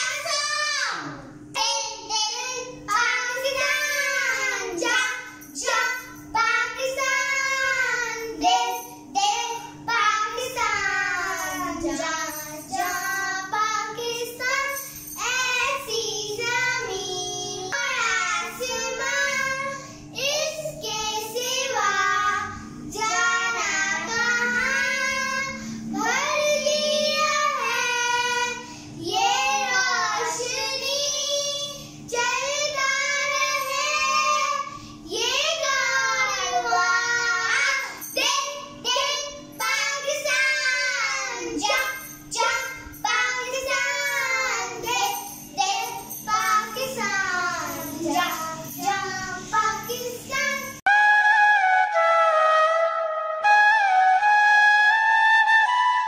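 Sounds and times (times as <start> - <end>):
faint steady hum: 0.0 - 50.9
girls singing: 9.2 - 50.8.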